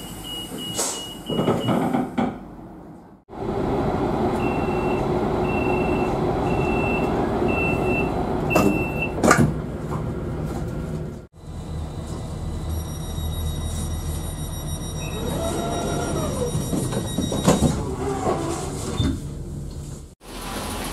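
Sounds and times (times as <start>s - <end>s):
train door warning beeps: 0.0s - 1.8s, 4.4s - 9.2s, 12.6s - 17.8s
train doors shutting: 0.0s - 2.5s, 4.3s - 10.1s, 11.9s - 19.4s.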